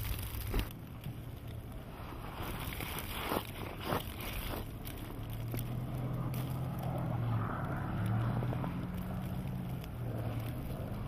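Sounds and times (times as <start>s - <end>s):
tyres on snow: 0.0s - 11.0s
car engine hum: 4.1s - 11.0s.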